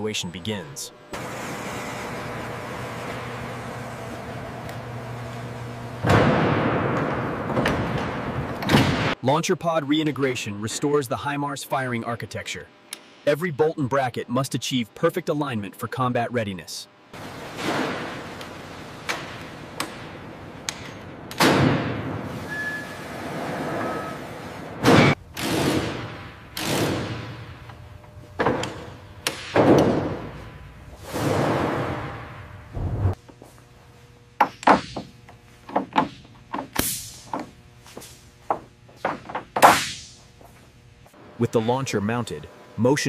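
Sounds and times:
machinery hum: 0.0s - 43.0s
brief high tone: 22.4s - 23.0s.

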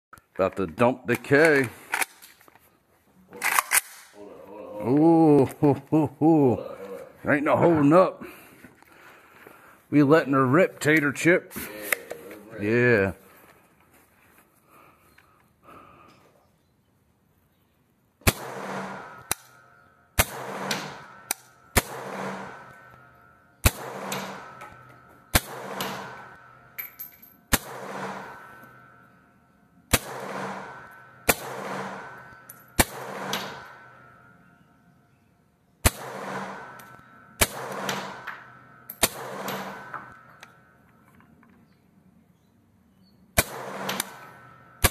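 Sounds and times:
rifle single shots echoing: 3.4s - 4.2s, 18.2s - 26.9s, 27.5s - 29.2s, 29.9s - 34.4s, 35.8s - 40.8s, 43.4s - 44.9s.

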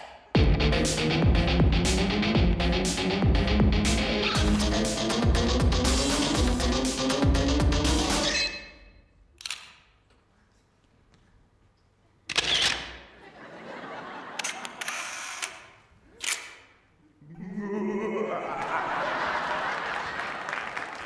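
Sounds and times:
audience cheering and applause: 18.4s - 21.0s.

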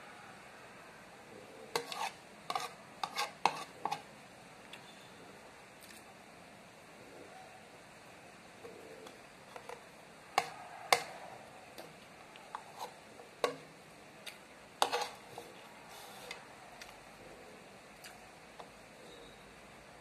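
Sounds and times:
cutlery clinking against bowl: 10.4s - 11.1s, 14.8s - 15.5s.

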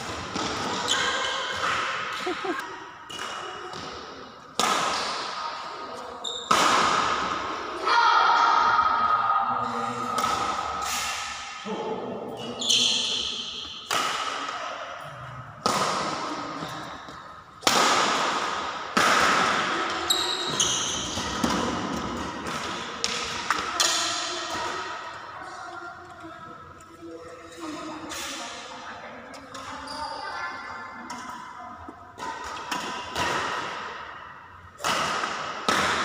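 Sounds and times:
shoes squeaking on court floor: 0.4s - 1.7s, 5.9s - 6.5s, 12.4s - 13.8s, 20.0s - 21.6s, 29.4s - 30.6s
racket hitting shuttlecock: 3.1s - 5.4s, 6.5s - 7.5s, 10.1s - 11.5s, 13.1s - 14.7s, 15.6s - 25.0s, 32.2s - 34.2s, 34.8s - 36.0s.

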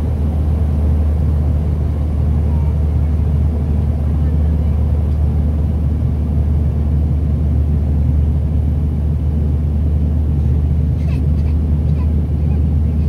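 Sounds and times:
turboprop engine drone: 0.0s - 13.0s.

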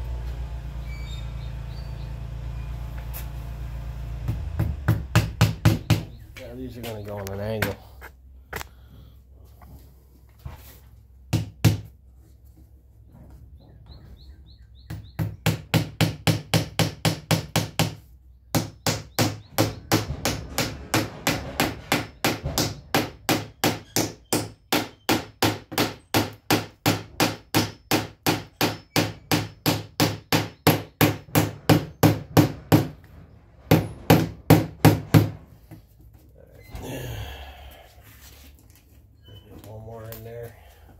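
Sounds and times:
hammer tapping nails into wood: 7.6s - 7.8s, 18.6s - 32.9s.

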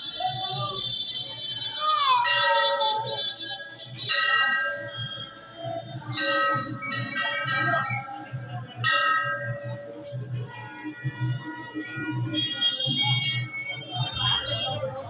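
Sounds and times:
metal bell ringing: 2.2s - 3.1s, 3.9s - 8.2s.

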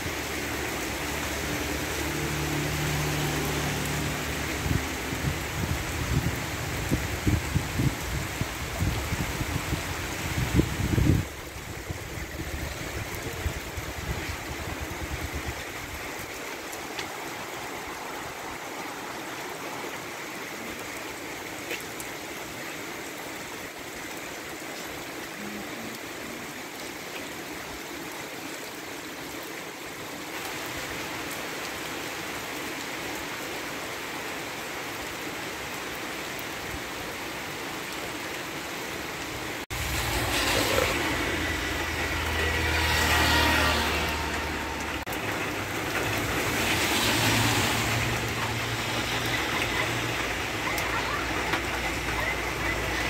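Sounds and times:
car passing on wet road: 0.0s - 25.2s, 28.2s - 53.0s
heavy rain on pavement: 0.0s - 53.0s.

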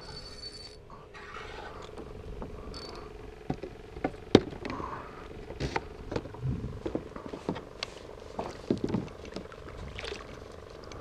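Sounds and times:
fishing reel whirring: 2.7s - 3.4s
gear knocking against kayak: 8.4s - 9.5s.

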